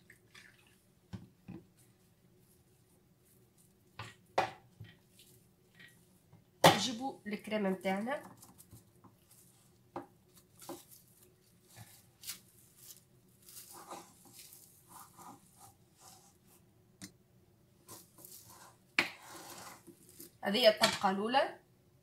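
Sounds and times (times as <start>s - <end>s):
spatula scraping cream on cake: 7.4s - 16.6s, 17.9s - 20.4s.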